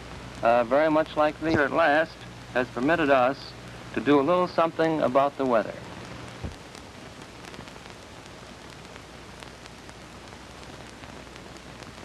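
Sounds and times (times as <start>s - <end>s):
film surface hiss: 0.0s - 12.0s
faint clicks and crackles: 5.8s - 12.0s.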